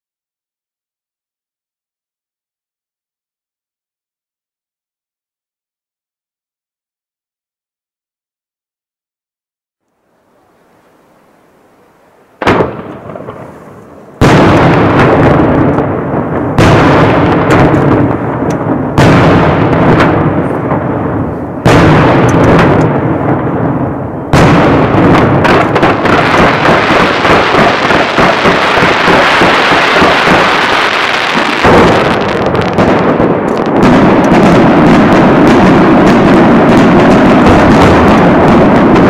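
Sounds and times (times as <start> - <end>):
firework bang: 12.4 - 39.0
firework barrage and crackle: 12.4 - 39.0.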